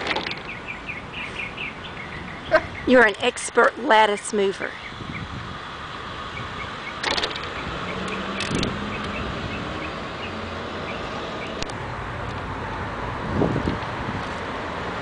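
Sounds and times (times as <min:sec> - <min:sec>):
traffic noise: 0:00.0 - 0:15.0
low engine hum: 0:04.7 - 0:15.0.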